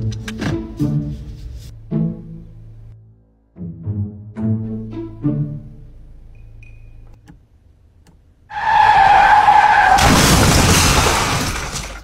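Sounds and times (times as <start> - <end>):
car tyres screeching: 8.4 - 10.5.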